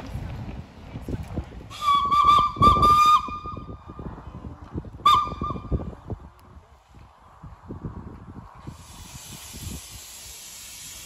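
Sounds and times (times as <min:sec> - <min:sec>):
steam locomotive whistle toots: 0:01.7 - 0:03.6.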